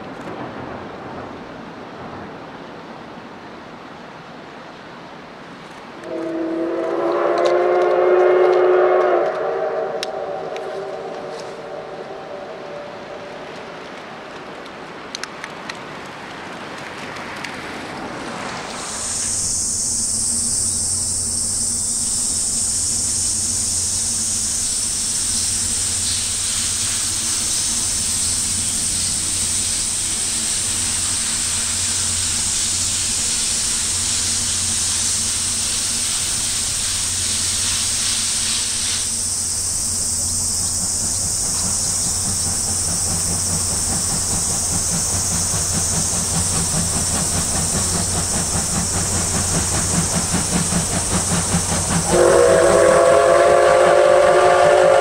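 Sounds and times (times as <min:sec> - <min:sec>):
steam locomotive hissing: 0:05.8 - 0:55.0
low rhythmic pulsing: 0:39.7 - 0:54.9.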